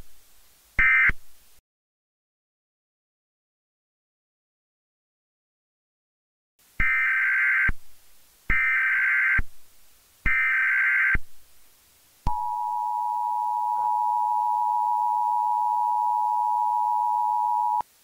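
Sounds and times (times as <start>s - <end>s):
two-tone attention signal: 12.3s - 17.8s.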